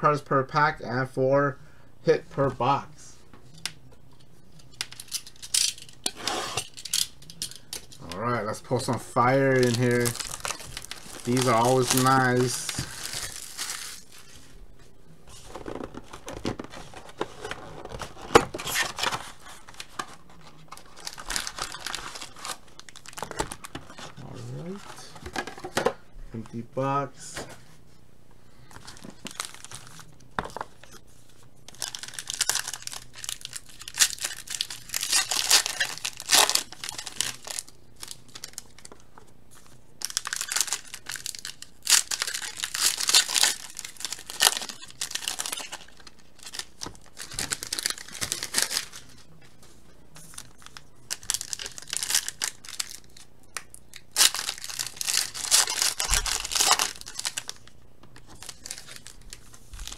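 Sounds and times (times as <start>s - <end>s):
foil wrappers tearing and crinkling: 4.8s - 8.2s, 8.9s - 14.5s, 15.4s - 25.4s, 28.7s - 31.0s, 31.7s - 39.0s, 40.0s - 49.2s, 50.2s - 59.9s.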